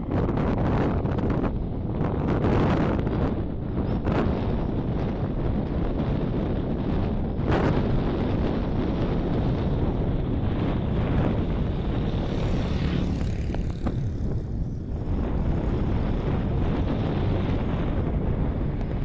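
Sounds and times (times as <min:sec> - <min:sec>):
wind noise on microphone: 0:00.0 - 0:19.0
distant locomotive drone: 0:07.2 - 0:19.0.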